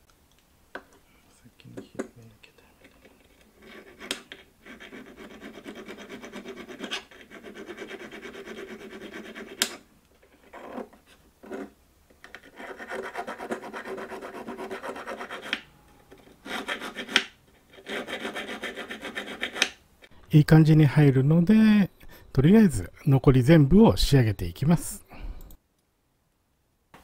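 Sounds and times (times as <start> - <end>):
hand file rasping on metal: 3.6 - 9.8, 12.5 - 15.6, 16.4 - 19.7.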